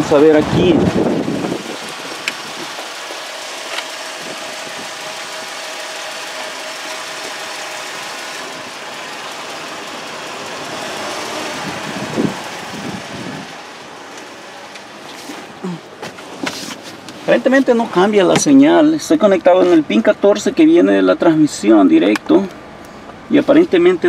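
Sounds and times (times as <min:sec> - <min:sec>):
mechanical running noise: 0:00.6 - 0:15.2.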